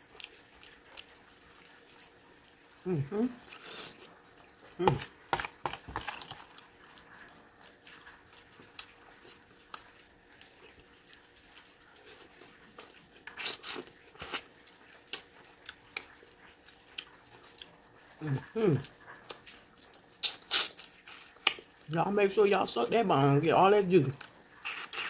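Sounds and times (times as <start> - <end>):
mouth chewing and sucking meat: 3.0 - 4.2, 4.9 - 21.7, 24.2 - 25.0
spoonfuls of soup: 4.8 - 7.8.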